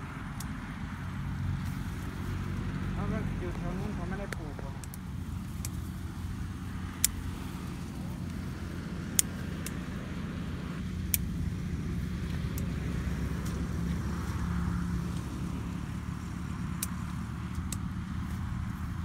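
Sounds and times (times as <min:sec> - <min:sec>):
low engine-like drone: 0:00.0 - 0:19.0
scissors snipping stems: 0:00.2 - 0:02.5, 0:03.4 - 0:10.0, 0:10.8 - 0:14.4, 0:16.3 - 0:19.0.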